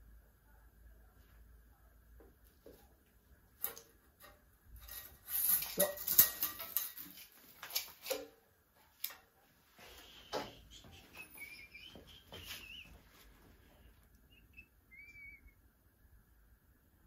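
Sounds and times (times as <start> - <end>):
metal parts clicking and scraping: 3.6 - 8.2
bird chirping: 10.6 - 13.2, 14.1 - 15.7.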